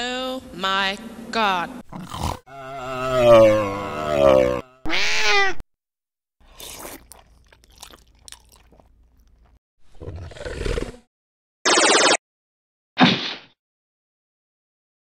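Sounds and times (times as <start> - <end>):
meow-like creature cry: 2.5 - 5.6.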